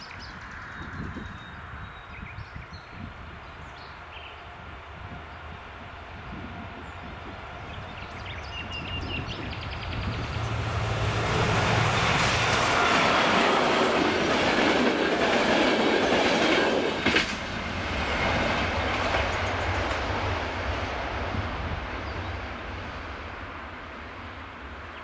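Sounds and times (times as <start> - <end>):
train rumbling past: 0.0 - 25.0.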